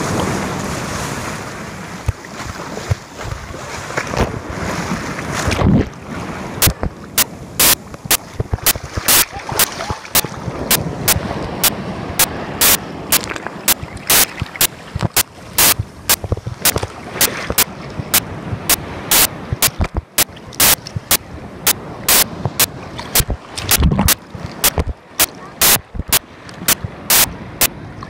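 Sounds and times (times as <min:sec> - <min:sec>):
surf breaking at shoreline: 0:00.0 - 0:28.0
sharp clicks on microphone: 0:06.6 - 0:09.8, 0:11.1 - 0:21.2, 0:22.1 - 0:27.7.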